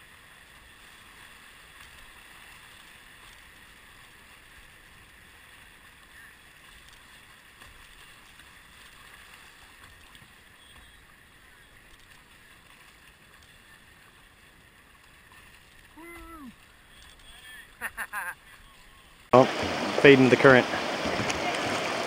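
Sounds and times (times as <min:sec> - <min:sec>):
river rapids rushing: 0:19.3 - 0:22.0.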